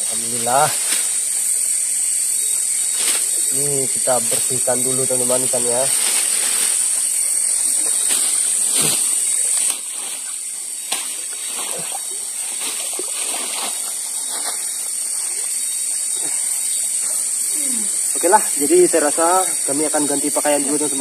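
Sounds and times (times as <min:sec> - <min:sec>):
steady high hiss: 0:00.0 - 0:21.0
river water splashing: 0:05.9 - 0:16.6.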